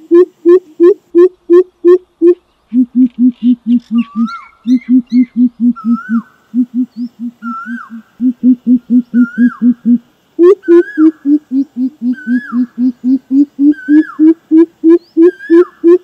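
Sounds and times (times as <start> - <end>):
bird deep hooting: 0.1 - 16.0.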